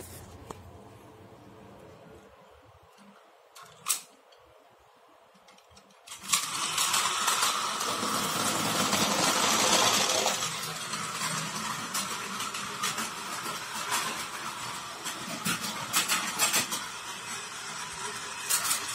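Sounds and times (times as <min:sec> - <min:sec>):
toy train motor whirring: 0:06.1 - 0:18.9.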